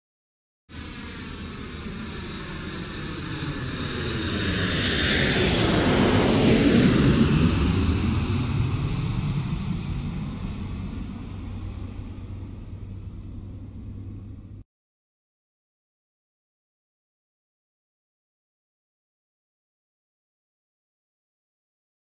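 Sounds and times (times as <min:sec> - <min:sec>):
jet aircraft passing overhead: 0:00.7 - 0:14.6.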